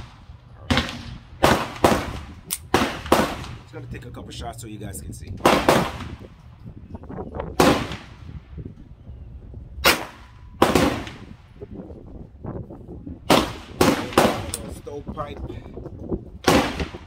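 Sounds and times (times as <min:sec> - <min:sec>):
pistol shots: 0:00.0 - 0:03.6, 0:05.4 - 0:06.2, 0:07.6 - 0:08.2, 0:09.8 - 0:11.3, 0:13.3 - 0:14.7, 0:16.4 - 0:17.0.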